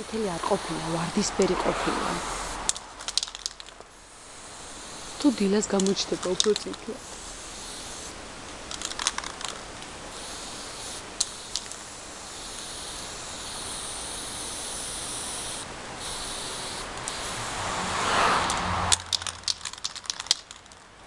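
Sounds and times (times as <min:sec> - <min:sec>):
spray can hissing: 0:00.0 - 0:20.6
sharp clicks: 0:02.7 - 0:03.9, 0:05.7 - 0:07.0, 0:18.4 - 0:20.8.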